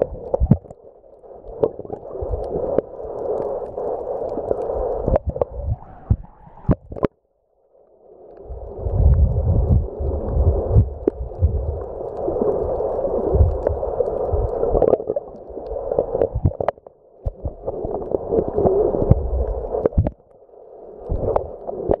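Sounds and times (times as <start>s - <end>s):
muffled underwater gurgling rush: 0.0s - 7.1s, 8.4s - 22.0s
sharp underwater clicks: 1.5s - 7.1s
low underwater thumps: 5.2s - 7.0s, 9.0s - 11.8s.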